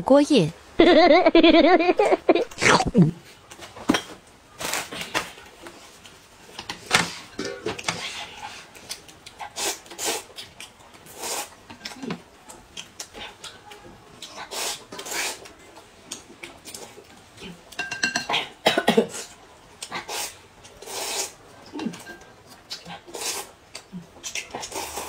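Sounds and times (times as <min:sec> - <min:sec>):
noodles slurped: 0:19.8 - 0:21.9, 0:22.6 - 0:25.0.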